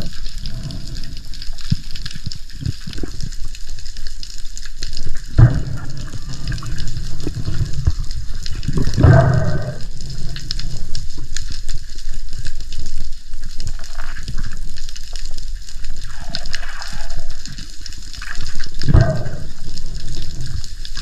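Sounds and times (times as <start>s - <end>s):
crackle of small clicks: 0.0s - 21.0s
water sloshing and bubbling: 0.0s - 21.0s
water rush: 5.2s - 12.2s, 13.7s - 21.0s.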